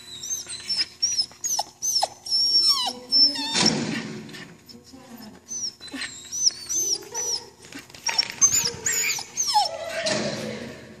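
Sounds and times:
dog whining: 0.0s - 4.0s, 5.2s - 10.7s.

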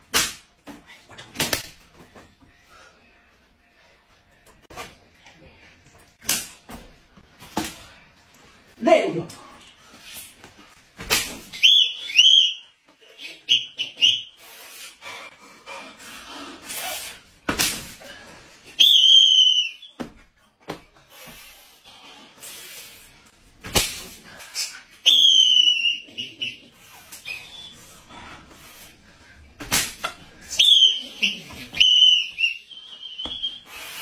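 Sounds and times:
stick whacks: 0.0s - 0.5s, 6.2s - 6.7s, 11.0s - 11.6s, 17.5s - 18.0s, 23.6s - 24.2s, 29.6s - 30.2s
shrill high-pitched squeal: 30.5s - 33.8s.

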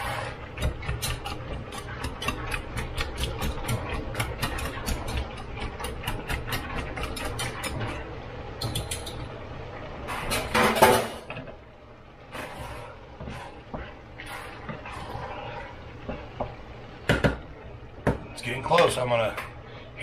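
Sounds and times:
metal whisk scraping a pot: 0.0s - 9.3s, 12.3s - 16.2s.

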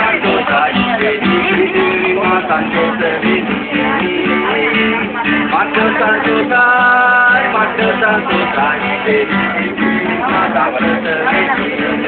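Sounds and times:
acoustic guitar music: 0.0s - 12.0s.

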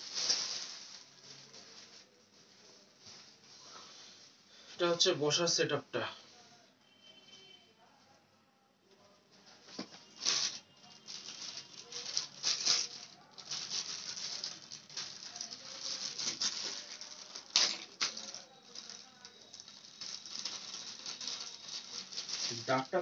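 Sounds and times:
plastic bag crinkling: 0.0s - 3.7s, 9.8s - 23.0s.

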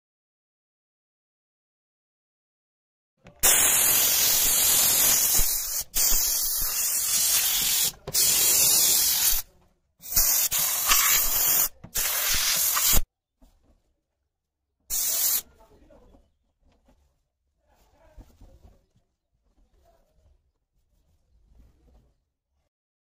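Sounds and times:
steam cleaner hissing: 3.4s - 9.4s, 10.0s - 13.0s, 14.9s - 15.4s.

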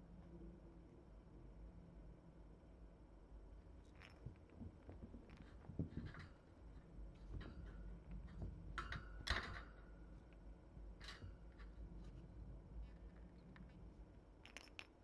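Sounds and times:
kittens scuffling and tapping: 3.9s - 13.9s.

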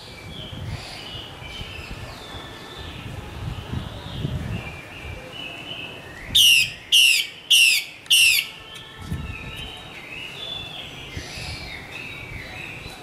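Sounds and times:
bird calling falling notes: 6.4s - 8.6s.

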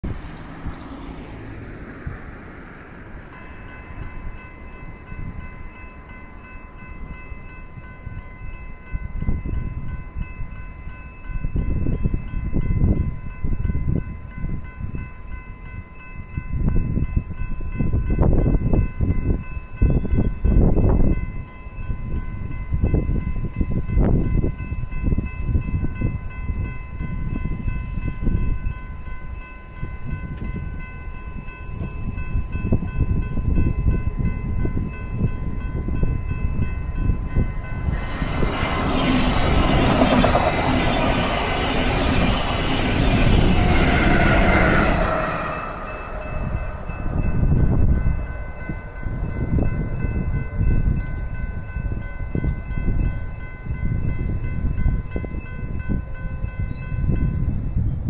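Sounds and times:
train wheels rushing on rail: 21.8s - 58.0s
low rumble: 33.5s - 50.4s.

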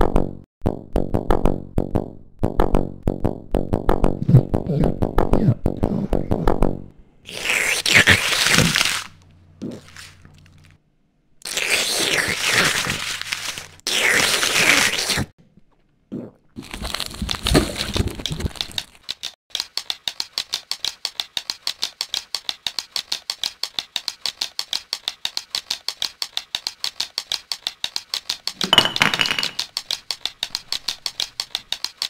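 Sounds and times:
fast clicking rattle: 18.5s - 28.8s, 29.5s - 32.0s.

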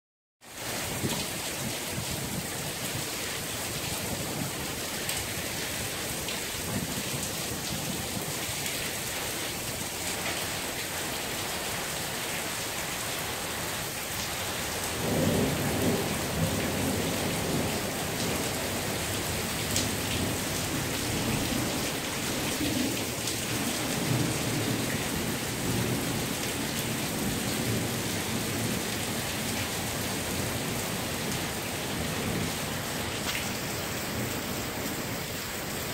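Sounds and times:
heavy rain hissing: 9.2s - 35.9s.

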